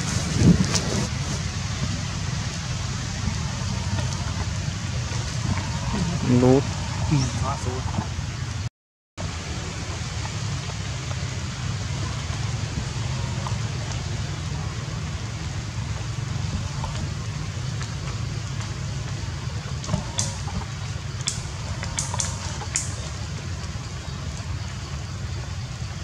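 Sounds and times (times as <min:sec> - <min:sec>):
rain falling through foliage: 0:00.0 - 0:26.0
sharp ticks: 0:19.8 - 0:23.8.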